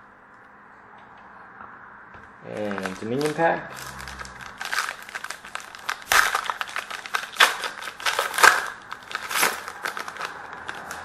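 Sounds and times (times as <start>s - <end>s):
foil wrapper crinkling and tearing: 2.5s - 11.0s.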